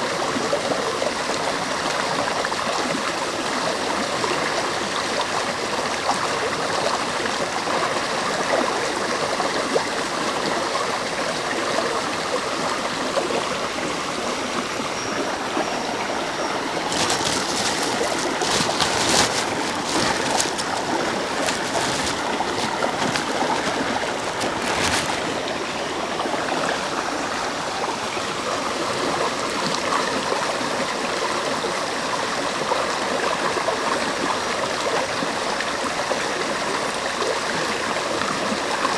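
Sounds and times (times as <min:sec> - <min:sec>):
stream flowing over rocks: 0:00.0 - 0:38.9
plastic bag rustling: 0:16.8 - 0:25.6.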